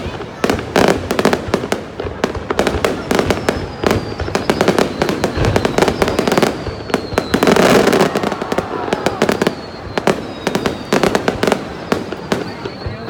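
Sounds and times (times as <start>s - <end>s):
firework bangs and crackles: 0.0s - 13.0s
faint falling whistle: 3.3s - 13.0s.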